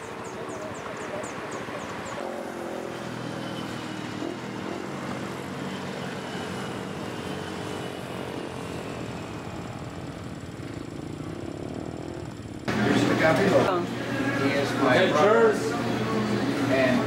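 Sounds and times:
engine humming: 0:00.0 - 0:17.0.

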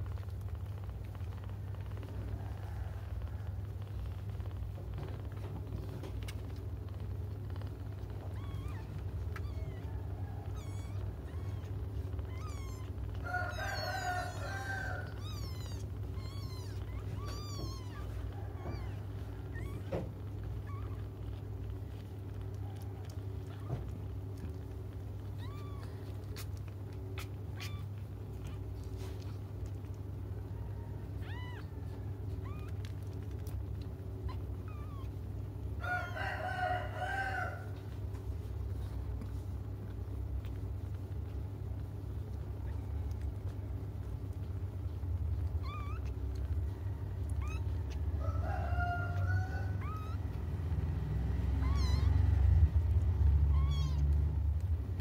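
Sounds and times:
kittens mewing: 0:00.0 - 0:55.0.

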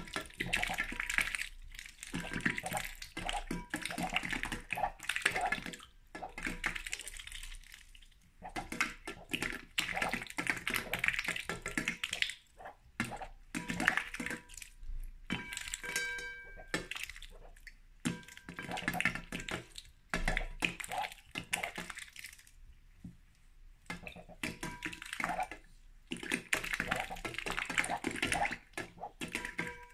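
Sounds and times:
duck bill dabbling in water: 0:00.0 - 0:22.6, 0:23.8 - 0:29.9.

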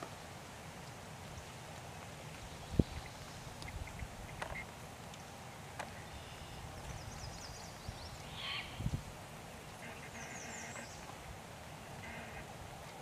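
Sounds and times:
birds chirping: 0:02.3 - 0:09.0, 0:09.6 - 0:12.4
buzzy bird call: 0:08.3 - 0:08.9, 0:09.8 - 0:11.1.

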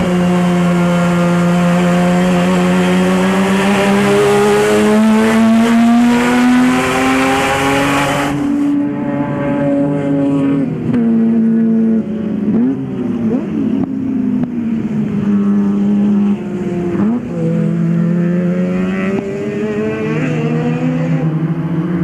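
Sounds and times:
race car rotary engine revving: 0:00.0 - 0:11.4, 0:15.6 - 0:21.3.

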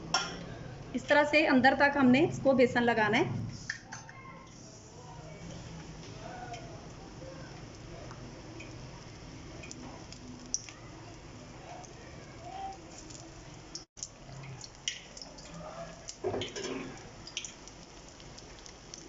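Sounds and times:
deep-frying sizzle: 0:02.6 - 0:19.0
oil crackling and popping: 0:05.8 - 0:19.0.

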